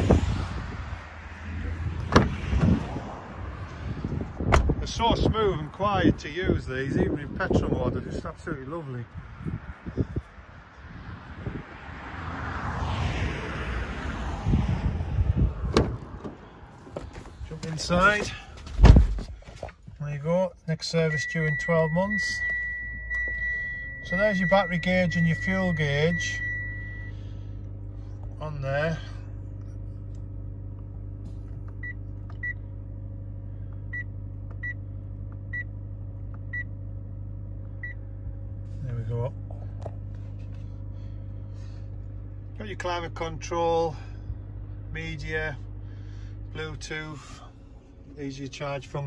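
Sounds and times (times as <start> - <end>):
vehicle tyre noise passing: 0.0 - 7.4, 8.1 - 18.8
wind buffeting microphone: 1.8 - 11.8, 14.4 - 17.2
car door unlatching click: 2.0 - 2.7, 4.5 - 4.8, 15.7 - 17.8
low hum: 21.2 - 49.0.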